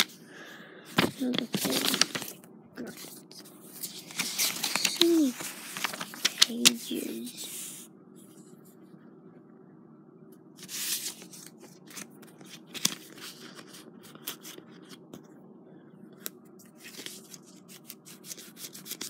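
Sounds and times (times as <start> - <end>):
book pages rustling: 0.9 - 7.8, 10.6 - 15.3, 16.2 - 19.0
paper crackle: 1.0 - 7.7, 10.6 - 15.0, 16.7 - 19.0.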